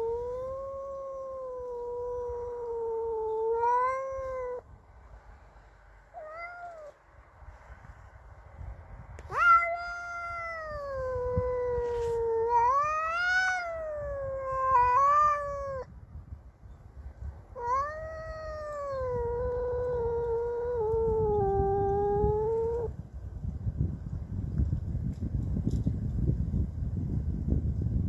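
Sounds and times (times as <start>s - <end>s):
cat yowling: 0.0s - 4.6s, 6.1s - 7.0s, 9.2s - 15.9s, 17.6s - 22.9s.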